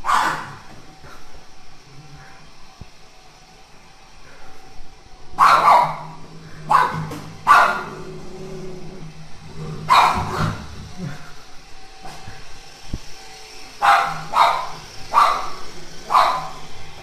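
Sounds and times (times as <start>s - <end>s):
dog barking: 0.0s - 0.6s, 5.4s - 8.0s, 9.9s - 10.6s, 13.8s - 16.6s
robot vacuum humming: 0.0s - 17.0s.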